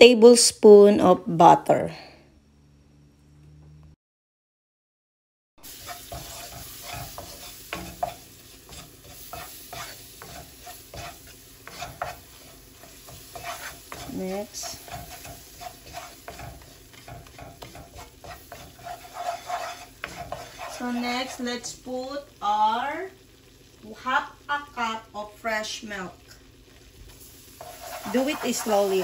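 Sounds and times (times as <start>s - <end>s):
butter and flour sizzling in pan: 5.6s - 29.0s
wooden spoon scraping pan: 5.7s - 21.7s, 27.5s - 29.0s.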